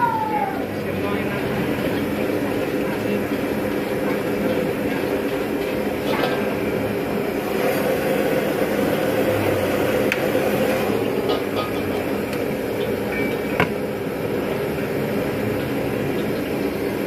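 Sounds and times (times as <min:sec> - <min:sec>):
gas burner roaring: 0:00.0 - 0:17.0
wok clank: 0:05.6 - 0:06.7, 0:11.1 - 0:13.9.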